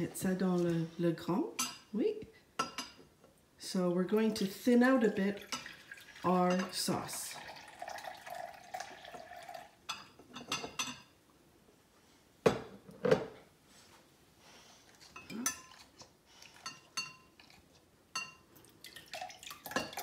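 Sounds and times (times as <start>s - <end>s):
metal spoon clinking on glass: 16.6s - 17.3s, 18.2s - 18.4s.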